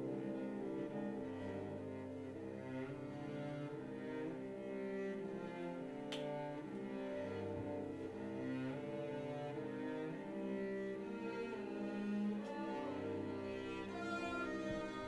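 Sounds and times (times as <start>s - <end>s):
bowed string drones: 0.0s - 15.0s
faint click: 6.1s - 6.8s.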